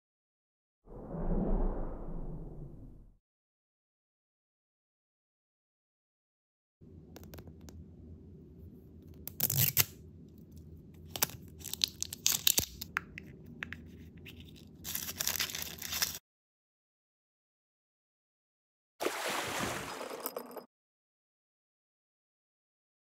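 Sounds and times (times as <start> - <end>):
plastic wrapping tearing and crinkling: 14.9 - 16.2.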